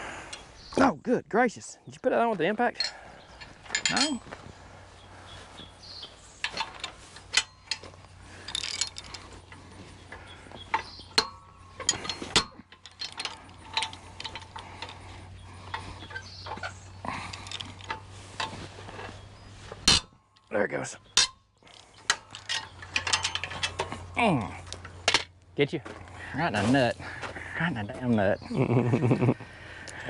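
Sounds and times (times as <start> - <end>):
metal clinks and clanks: 2.7 - 4.4, 6.3 - 25.4.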